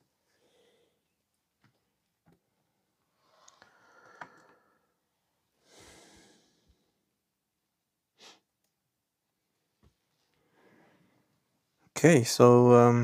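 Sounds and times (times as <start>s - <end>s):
faint breathing: 0.2s - 1.2s, 3.1s - 7.1s, 10.4s - 11.4s.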